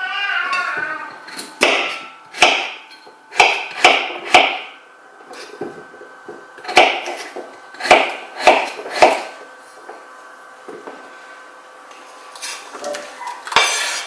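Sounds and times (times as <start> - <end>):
knife chopping on wooden board: 1.6 - 4.7, 6.6 - 9.3.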